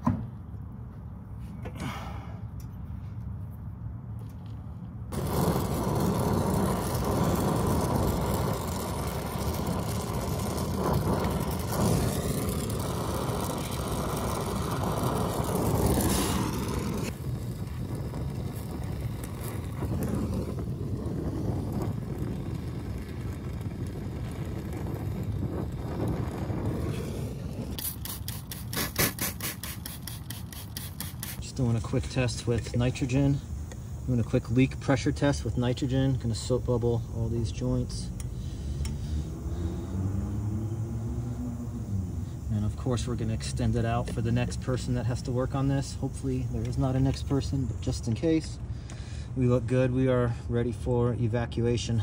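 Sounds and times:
torch flame hissing: 5.1s - 48.7s.

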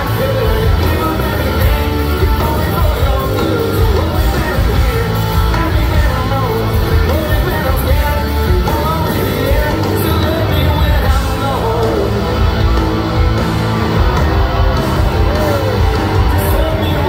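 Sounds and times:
person singing lead vocal: 0.0s - 17.0s
rock band playing live: 0.0s - 17.0s.

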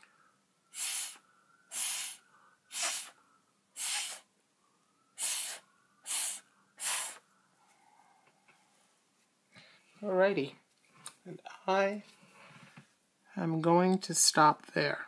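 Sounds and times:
puffs of breath through a straw: 0.7s - 3.2s, 3.8s - 4.3s, 5.2s - 8.1s.

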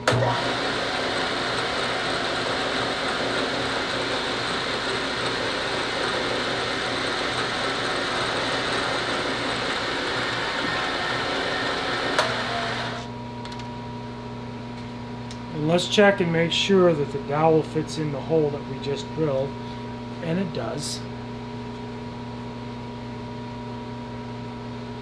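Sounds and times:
drill bit whirring into wood: 0.0s - 13.1s.

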